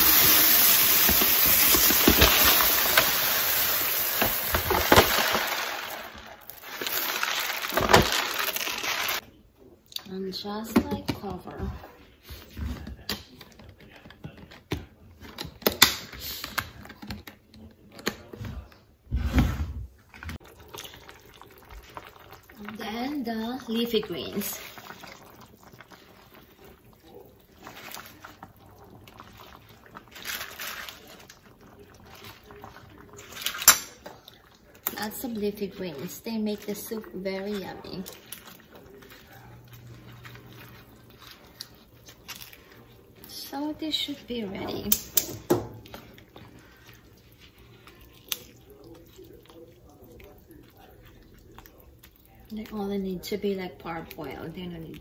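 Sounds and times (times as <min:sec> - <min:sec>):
soup bubbling at a simmer: 0:20.4 - 0:34.9.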